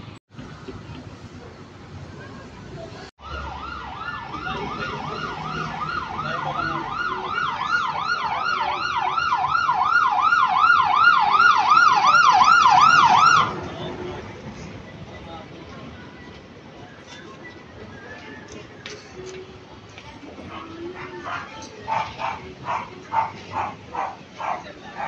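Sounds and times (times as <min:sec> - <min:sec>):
quiet street noise: 0:00.0 - 0:25.0
ambulance siren yelping: 0:03.2 - 0:13.6.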